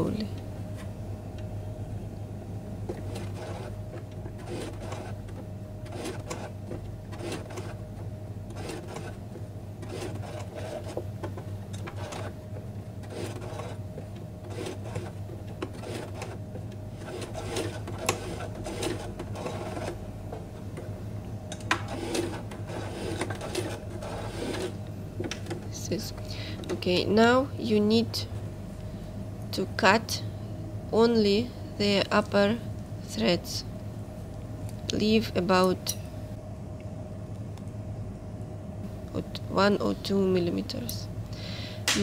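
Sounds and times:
sewing machine motor humming: 2.9s - 12.4s, 13.0s - 20.0s, 21.7s - 24.8s
sewing machine needle strokes: 4.4s - 5.2s, 5.8s - 6.5s, 7.1s - 7.8s, 8.5s - 9.2s, 9.8s - 11.0s, 11.8s - 12.3s, 13.0s - 13.8s, 14.4s - 16.4s, 17.0s - 20.0s, 21.9s - 24.8s.

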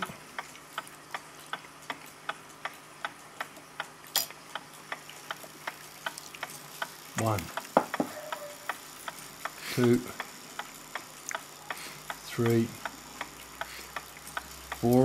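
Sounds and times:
pendulum clock ticking: 1.1s - 15.0s.

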